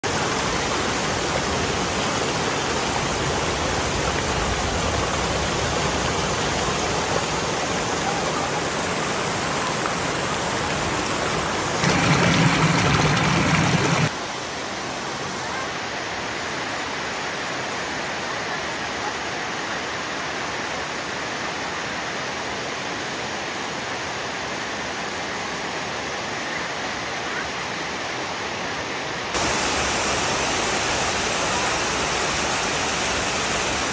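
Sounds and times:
water pouring over weir: 8.7s - 14.1s.

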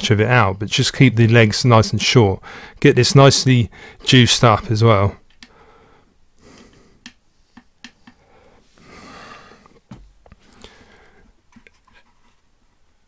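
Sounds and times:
tools clicking and tapping: 7.0s - 8.2s.

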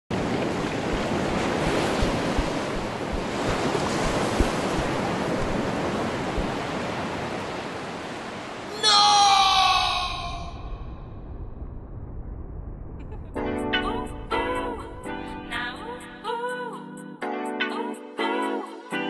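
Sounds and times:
wind rushing over microphone: 0.1s - 8.1s, 10.1s - 15.5s
low bumps: 0.6s - 5.7s, 6.3s - 6.6s.

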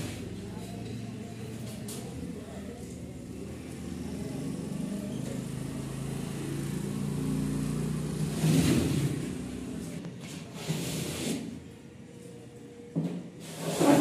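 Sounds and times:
vehicle engine passing by: 3.2s - 10.0s.

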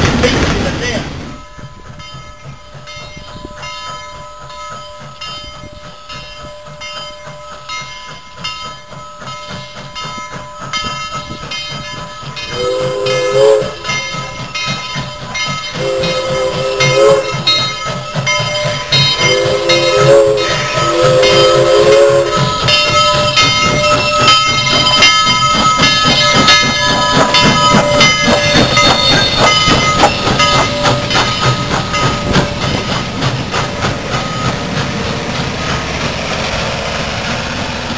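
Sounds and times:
steam locomotive exhaust beats: 0.0s - 37.9s
steam whistle blasts: 12.6s - 14.2s, 15.7s - 17.8s, 19.0s - 22.7s.

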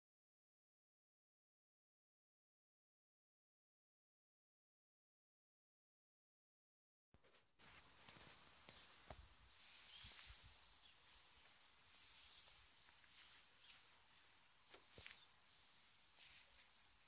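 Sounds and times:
faint outdoor hiss: 7.2s - 17.0s
high thin chirps: 8.8s - 17.0s.

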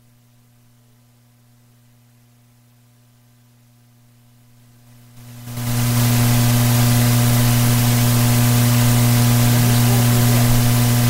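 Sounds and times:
loud electrical hum: 0.0s - 11.0s
steady hiss: 4.9s - 11.0s.

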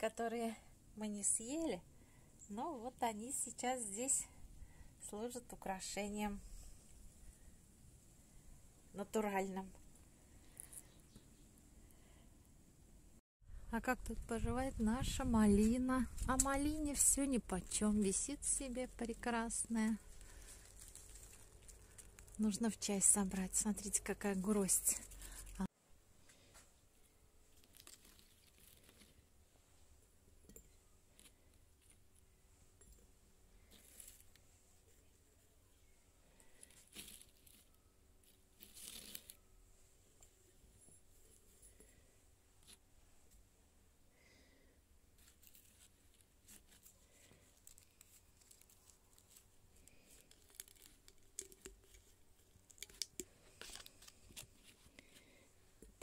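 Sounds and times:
faint soft clicks and rustles: 9.6s - 12.2s, 15.5s - 43.6s, 45.1s - 56.0s.

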